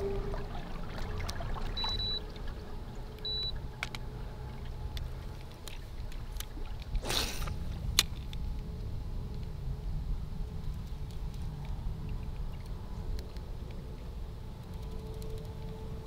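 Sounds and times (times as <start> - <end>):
water lapping against hull: 0.0 - 7.9
short electronic beeps: 1.8 - 2.2, 3.2 - 3.6.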